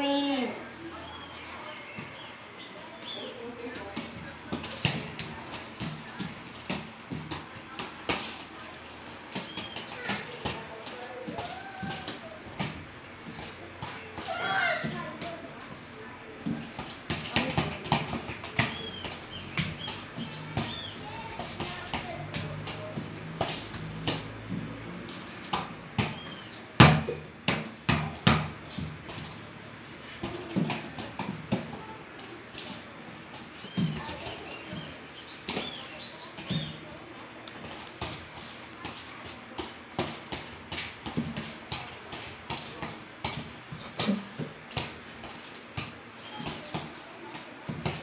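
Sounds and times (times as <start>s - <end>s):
football thudding on tiled floor: 3.7s - 8.4s, 16.4s - 29.4s, 30.2s - 31.9s, 37.6s - 47.0s, 47.6s - 48.0s.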